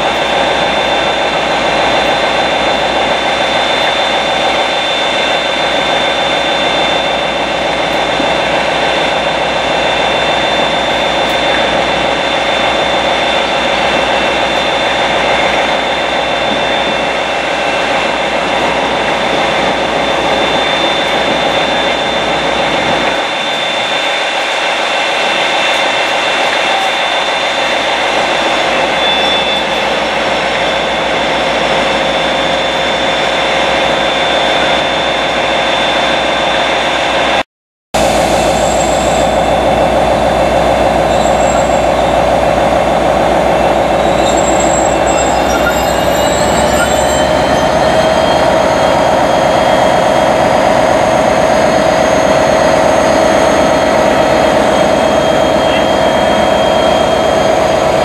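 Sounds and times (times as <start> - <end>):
steady whine: 0.0 - 37.4, 38.0 - 58.0
diesel locomotive engine drone: 0.0 - 58.0.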